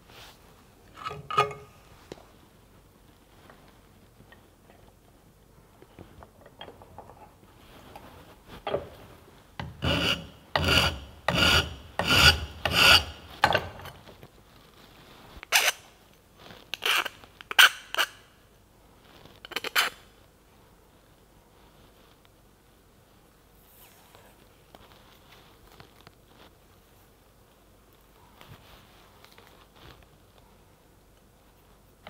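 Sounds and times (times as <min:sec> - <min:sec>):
hand file scraping metal: 0:09.6 - 0:13.7.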